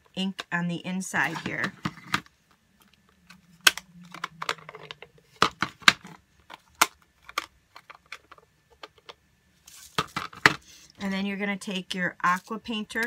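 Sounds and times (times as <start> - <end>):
plastic cases clacking: 1.3 - 2.3, 3.3 - 10.6.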